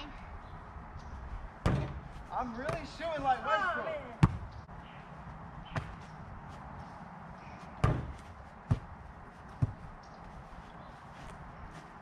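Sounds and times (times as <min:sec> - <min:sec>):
basketball thuds: 0:01.6 - 0:02.1, 0:04.2 - 0:04.5, 0:07.8 - 0:08.9.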